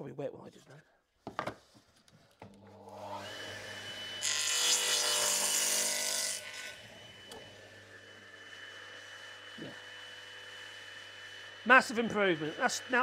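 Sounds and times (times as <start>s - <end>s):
saw blade cutting wood: 2.9s - 13.0s
saw motor humming: 2.9s - 13.0s.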